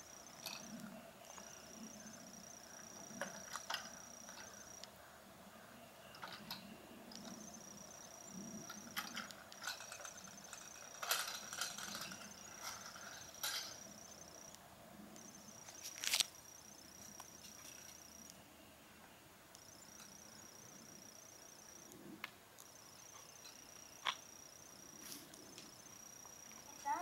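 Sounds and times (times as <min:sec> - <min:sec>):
insects trilling: 0:00.0 - 0:27.0
child's bike rattling on asphalt: 0:08.6 - 0:13.9, 0:26.6 - 0:27.0.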